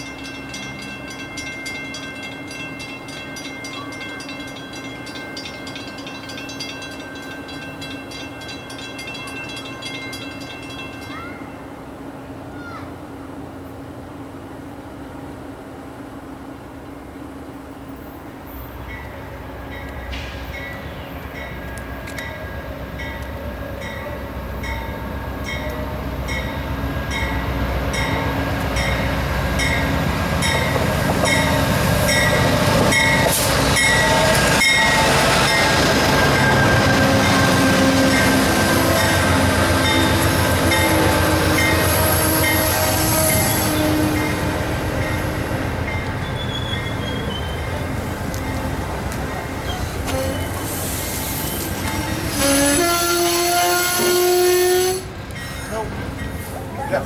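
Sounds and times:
crossing bell ringing: 0:00.0 - 0:11.9, 0:18.7 - 0:50.6, 0:51.6 - 0:57.0
passenger train passing: 0:00.0 - 0:57.0
train wheel squeal: 0:30.5 - 0:44.4, 0:45.9 - 0:48.0, 0:49.3 - 0:57.0.

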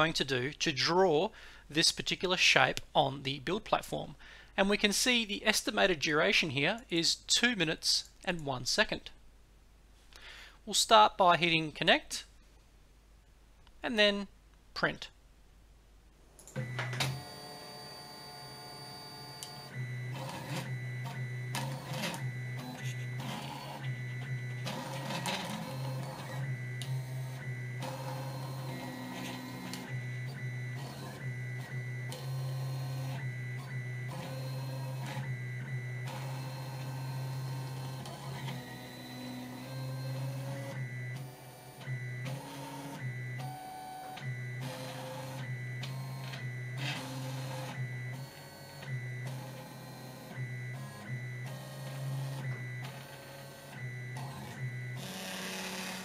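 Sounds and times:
stepper motors whirring: 0:16.6 - 0:39.2.

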